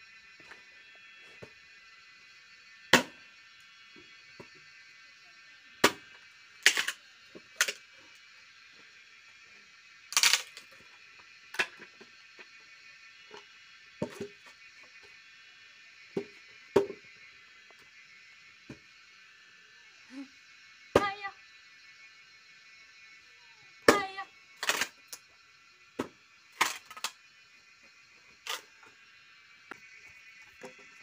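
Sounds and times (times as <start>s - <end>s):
axe chopping wooden log: 3.0s - 3.2s.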